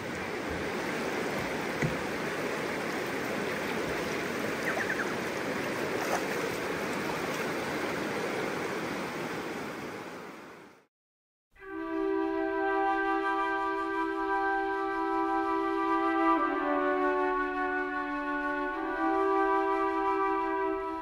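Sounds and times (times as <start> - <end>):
river water rushing: 0.0 - 10.8.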